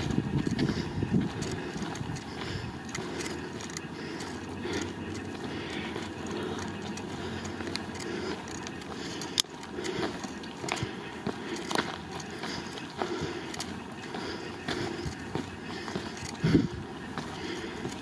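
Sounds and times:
wind rumble on microphone: 0.0 - 3.2, 16.3 - 17.0
faint ticks: 0.0 - 18.0.

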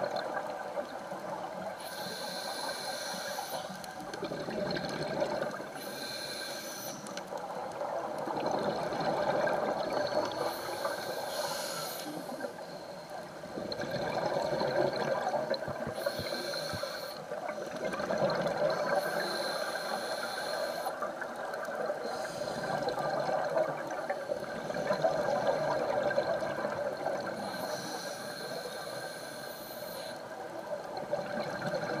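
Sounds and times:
hissing regulator inhale: 1.8 - 4.0, 5.6 - 7.4, 10.4 - 13.3, 15.9 - 17.4, 18.9 - 21.2, 22.0 - 22.9, 27.2 - 30.4
bubbling exhaled air: 4.1 - 6.0, 13.5 - 20.4, 21.9 - 27.7.

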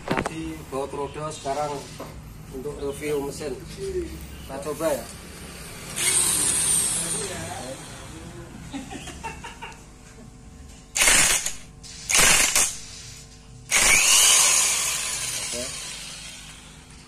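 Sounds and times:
electric impact wrench hammering: 5.4 - 7.9, 10.7 - 17.0.

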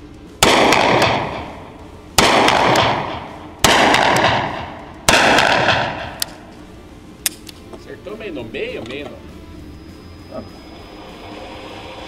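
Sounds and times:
revolver shots echoing indoors: 0.4 - 6.6.

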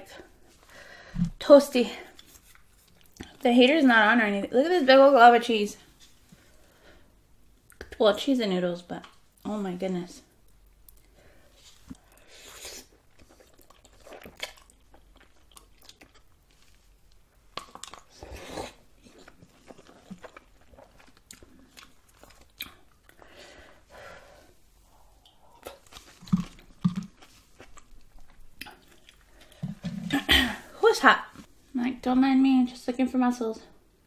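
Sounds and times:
wet chewing and mouth clicks: 2.1 - 3.4, 10.4 - 23.3, 25.0 - 30.1.

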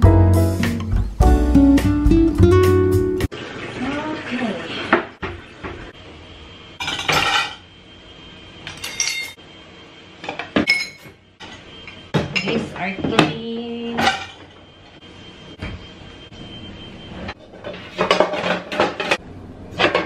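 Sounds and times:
glass dishes clinking in dishwasher rack: 6.8 - 7.6, 8.7 - 9.4, 10.3 - 11.2, 14.0 - 14.4, 18.0 - 19.2.

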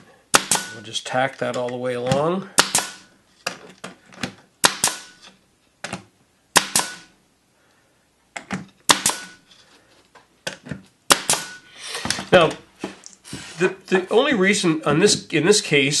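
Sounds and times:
nail gun firing with air hiss: 0.3 - 0.7, 2.6 - 3.1, 4.6 - 5.2, 6.6 - 7.1, 8.9 - 9.4, 11.1 - 12.2.

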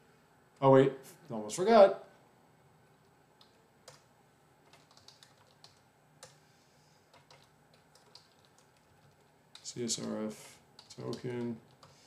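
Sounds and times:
computer keyboard typing: 3.4 - 6.4, 7.1 - 12.0.

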